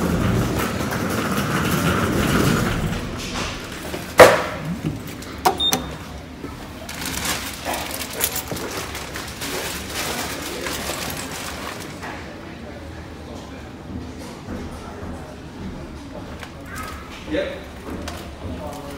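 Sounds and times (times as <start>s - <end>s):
lift door thud: 2.7s - 6.1s
short beep: 5.5s - 5.9s.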